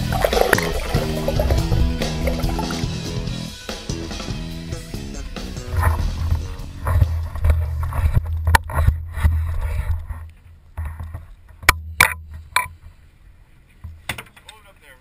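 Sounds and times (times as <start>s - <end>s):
water churning and rushing: 0.0s - 3.6s.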